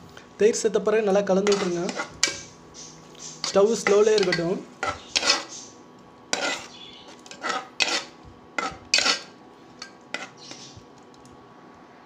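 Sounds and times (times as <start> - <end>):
metal ladle scraping a pot: 1.4 - 2.4, 3.4 - 5.6, 6.3 - 10.7.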